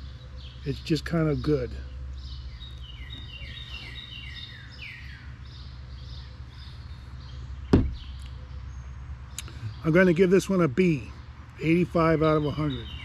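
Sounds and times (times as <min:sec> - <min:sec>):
songbird chirping: 0:00.0 - 0:13.0
sharp knock: 0:07.7 - 0:08.0.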